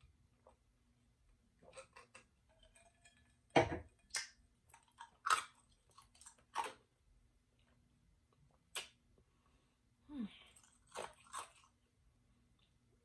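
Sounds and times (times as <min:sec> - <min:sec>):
person eating and drinking: 0:01.6 - 0:06.9, 0:10.3 - 0:11.8.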